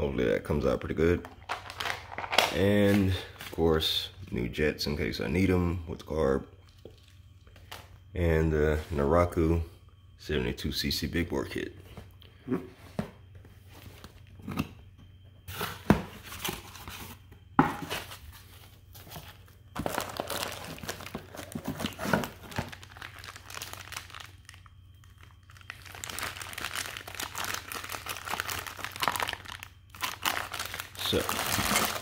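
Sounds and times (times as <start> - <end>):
plastic wrapping crinkling: 18.1 - 32.0.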